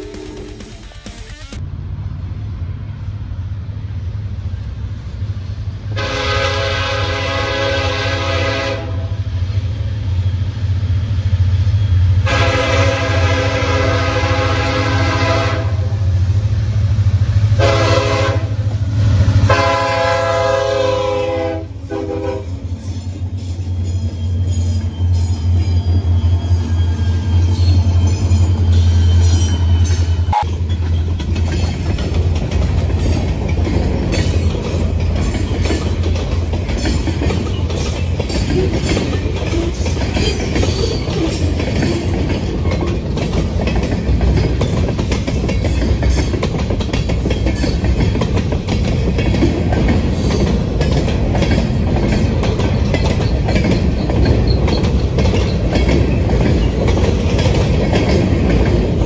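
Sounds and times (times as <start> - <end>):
train wheels clicking over rail joints: 0.0 - 1.6, 16.1 - 59.0
diesel locomotive hum: 0.0 - 59.0.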